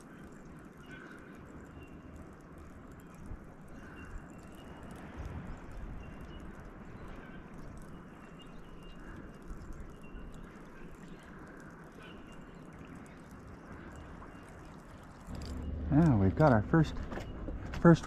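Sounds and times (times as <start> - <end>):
low rumble: 15.0 - 18.0.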